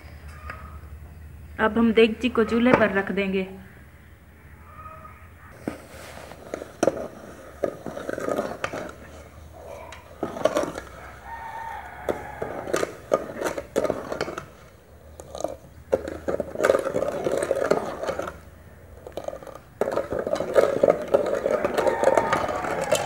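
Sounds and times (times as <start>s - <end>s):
pitched calls: 3.6s - 5.6s
metal ladle scraping a pot: 5.6s - 23.0s.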